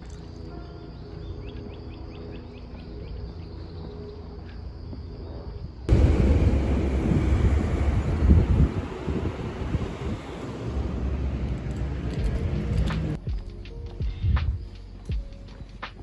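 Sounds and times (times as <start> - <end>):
wind buffeting microphone: 5.6 - 13.2.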